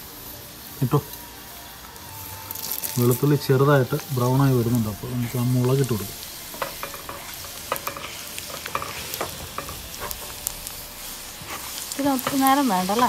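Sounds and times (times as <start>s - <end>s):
butter sizzling in a pan: 0.0s - 13.0s
crackles and pops: 0.8s - 13.0s.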